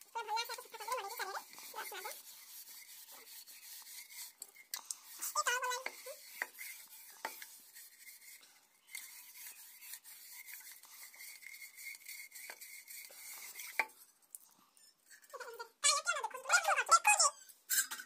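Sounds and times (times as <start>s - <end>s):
scrubber rubbing inside bottle: 0.0s - 14.1s.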